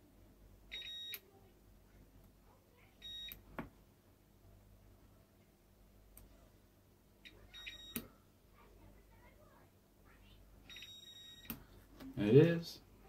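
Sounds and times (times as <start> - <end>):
multimeter continuity beeps: 0.7 - 1.2, 3.0 - 3.4, 7.2 - 8.1, 10.6 - 11.6.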